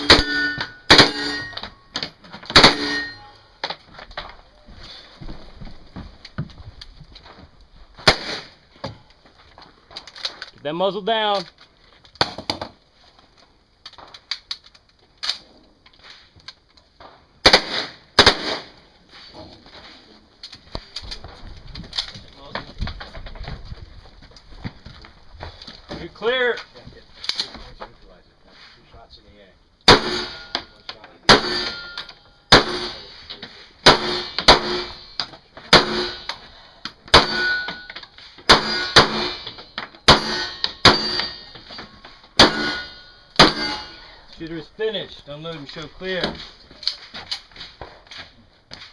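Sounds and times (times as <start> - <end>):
gunshot echo: 0.0 - 1.5, 2.5 - 3.2, 8.0 - 8.5, 17.4 - 18.7, 29.9 - 30.6, 31.3 - 31.8, 33.8 - 35.0
gunshots: 0.0 - 1.5, 2.5 - 3.2, 8.0 - 8.6, 17.4 - 18.8, 29.9 - 30.6, 31.2 - 33.1, 33.8 - 36.3, 37.1 - 37.7, 38.5 - 41.5, 42.4 - 44.0
steel target clanging and ringing: 0.0 - 3.5, 29.9 - 33.1, 33.8 - 36.3, 37.1 - 41.8, 42.4 - 44.1
submachine gun single shots: 0.9 - 1.4, 2.5 - 3.1, 8.0 - 8.5, 17.4 - 18.8, 29.9 - 30.4, 33.8 - 35.0.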